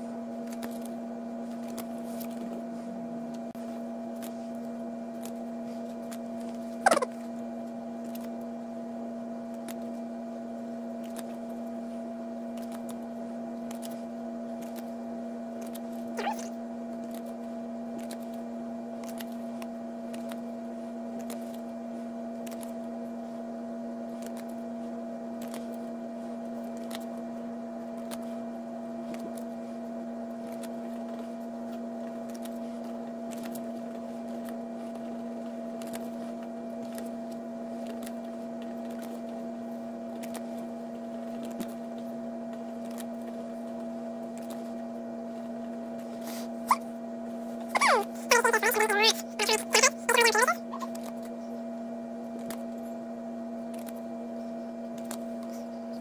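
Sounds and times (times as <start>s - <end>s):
steady two-tone hum: 0.0s - 56.0s.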